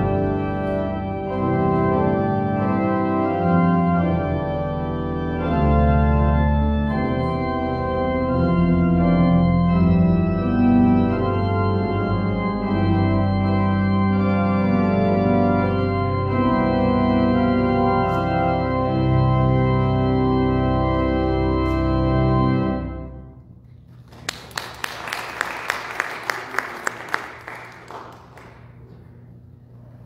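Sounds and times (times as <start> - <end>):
church organ chords: 0.0 - 23.8.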